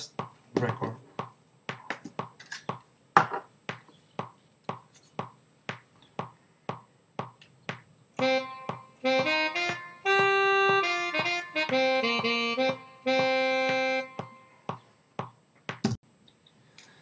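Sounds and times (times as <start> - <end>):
tenor saxophone held notes: 8.2 - 14.7.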